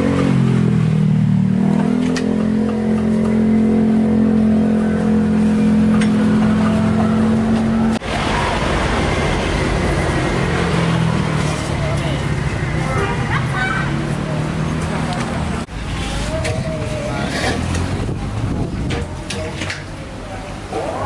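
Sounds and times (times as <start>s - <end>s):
engine running: 0.0s - 21.0s
even rushing noise: 5.7s - 12.9s.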